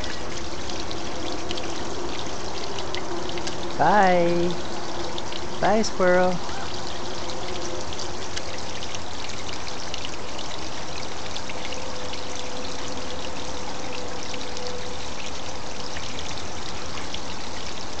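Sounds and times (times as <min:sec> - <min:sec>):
small waterfall splashing: 0:00.0 - 0:18.0.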